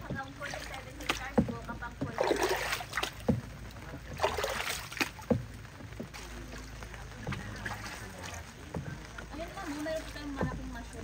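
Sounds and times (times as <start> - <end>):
paddle splashing in water: 0.0 - 11.0.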